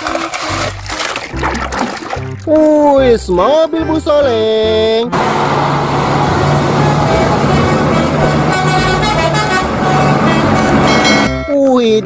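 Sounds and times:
bus engine running: 0:05.1 - 0:11.4
traffic noise: 0:05.1 - 0:11.4
bus horn tooting: 0:05.2 - 0:11.5.

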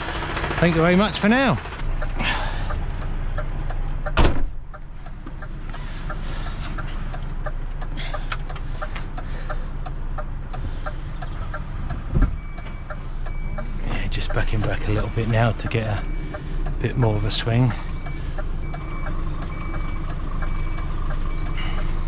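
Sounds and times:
truck diesel engine idling: 0:00.0 - 0:22.0
light regular ticking: 0:00.4 - 0:22.0
loud clunk: 0:04.1 - 0:04.6.

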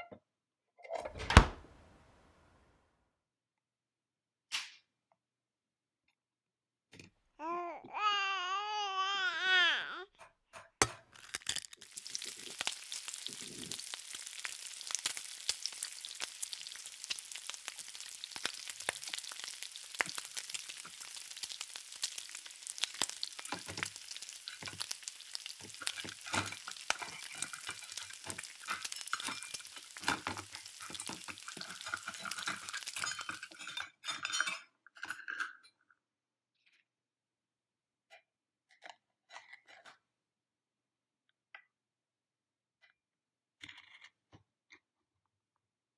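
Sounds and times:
frying sizzle: 0:11.2 - 0:33.8.

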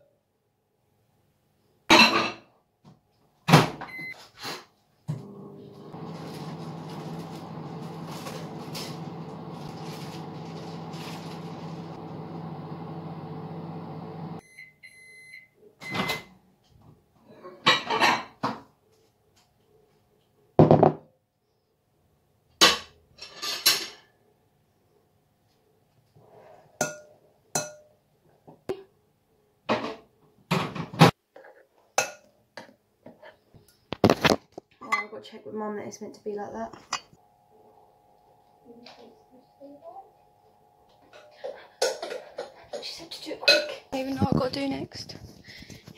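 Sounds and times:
microwave oven humming: 0:05.1 - 0:14.5, 0:37.2 - 0:41.7.

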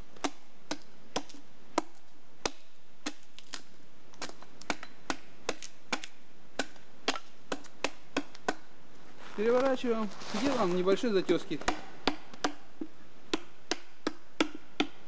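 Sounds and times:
blade knocking on wooden log: 0:11.6 - 0:15.0.

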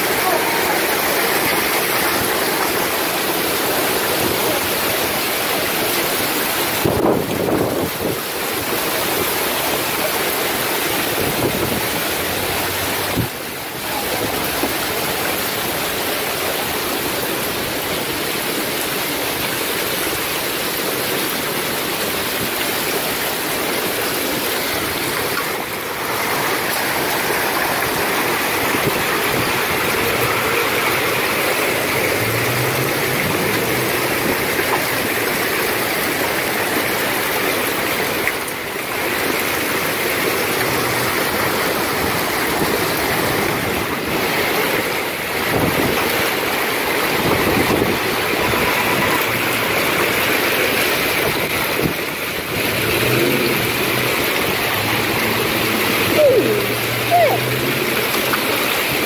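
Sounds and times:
heavy rain downpour: 0:00.0 - 0:59.0
strong wind: 0:06.7 - 0:08.8, 0:11.0 - 0:14.8, 0:41.2 - 0:50.1.

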